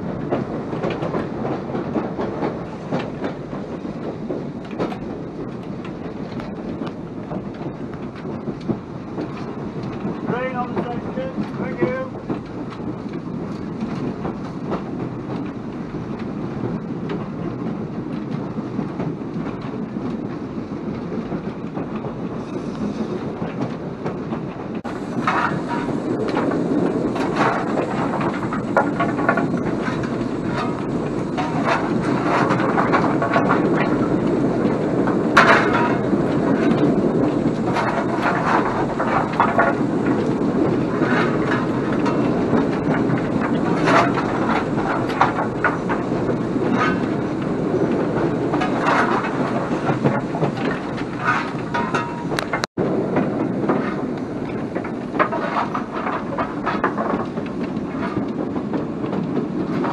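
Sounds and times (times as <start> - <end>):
steam locomotive rumble and hiss: 0.0 - 59.9
wheels clicking over rail joints: 0.0 - 59.9
coal shovel clanking and scraping: 24.8 - 34.1, 35.3 - 39.8, 40.8 - 47.3, 48.4 - 52.7, 54.8 - 57.4.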